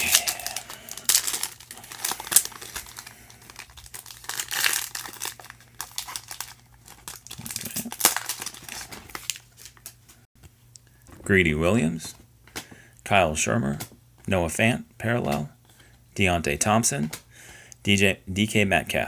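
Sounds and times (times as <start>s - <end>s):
foil wrapper tearing and crinkling: 0.0s - 10.0s.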